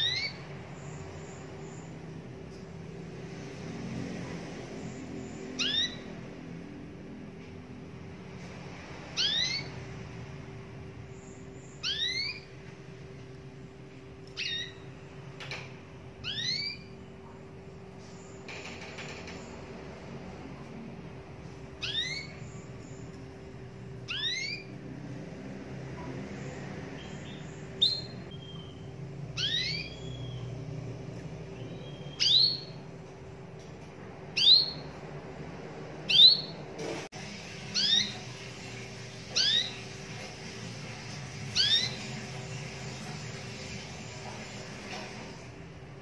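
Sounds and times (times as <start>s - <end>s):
canary whistled call notes: 0.0s - 0.4s, 5.4s - 6.1s, 9.2s - 9.8s, 11.7s - 12.5s, 14.4s - 14.9s, 16.2s - 17.0s, 21.8s - 22.7s, 24.1s - 24.7s, 27.0s - 30.6s, 31.6s - 32.8s, 34.4s - 34.9s, 36.1s - 36.6s, 37.7s - 39.9s, 41.5s - 45.1s.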